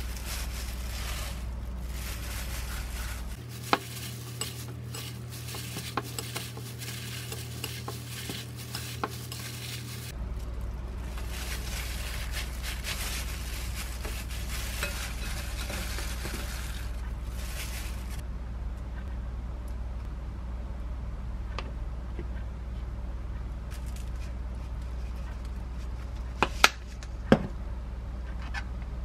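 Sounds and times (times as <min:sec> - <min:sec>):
plastic glove crinkling: 0:00.0 - 0:18.2, 0:23.7 - 0:26.8
wet squishing of noodles: 0:00.0 - 0:18.2
low hum: 0:00.0 - 0:29.0.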